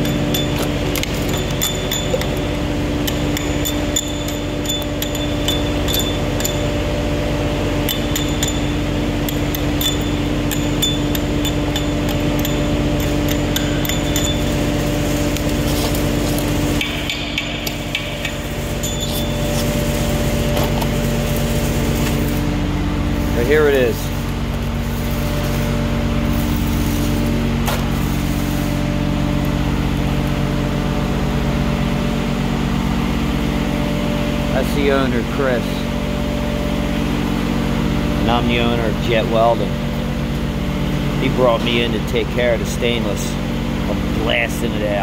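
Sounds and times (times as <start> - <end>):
metal tool tapping steel column: 0.0 - 6.8, 7.8 - 15.6, 16.4 - 19.8
steady machine hum: 0.0 - 45.0.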